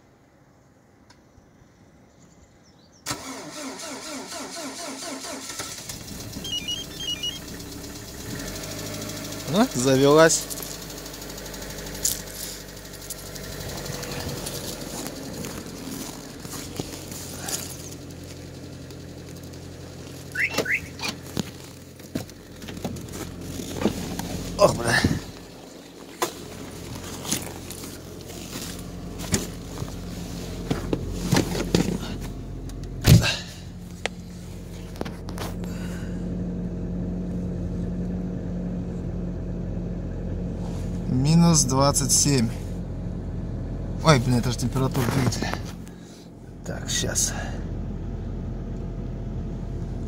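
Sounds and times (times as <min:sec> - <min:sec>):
car starter cranking: 0:03.1 - 0:34.0
car engine running: 0:04.3 - 0:50.0
short rising squeaks: 0:06.3 - 0:07.6, 0:20.2 - 0:21.4
short electronic beeps: 0:06.4 - 0:07.5, 0:20.4 - 0:21.0.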